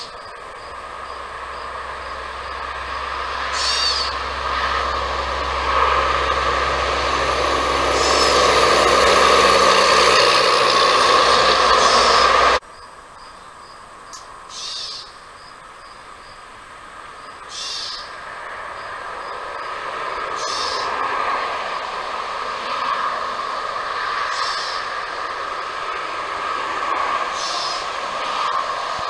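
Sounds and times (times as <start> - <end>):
distant engine drone: 0.0 - 29.0
short high bird calls: 3.5 - 4.2, 14.5 - 15.2, 17.5 - 18.1, 20.4 - 20.9, 24.3 - 24.8, 27.4 - 27.8.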